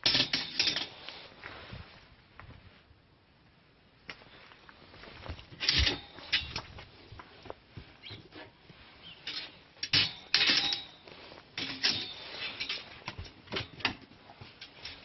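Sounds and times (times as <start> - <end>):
metal cage door rattling: 9.3 - 11.0.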